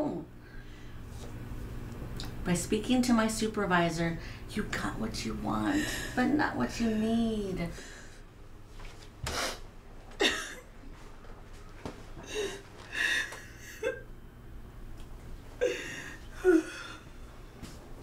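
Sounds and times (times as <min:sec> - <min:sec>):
woman sobbing: 0:10.2 - 0:10.6, 0:12.2 - 0:14.1, 0:15.6 - 0:17.1.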